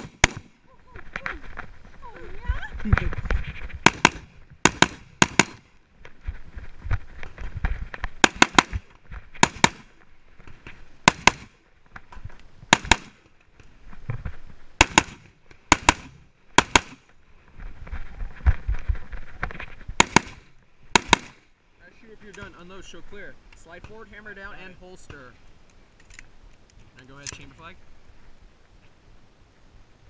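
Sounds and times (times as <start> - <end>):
rifle shots: 0.0 - 0.6, 3.8 - 5.7, 8.2 - 9.9, 11.0 - 11.6, 12.7 - 13.3, 14.8 - 17.0, 20.0 - 21.4.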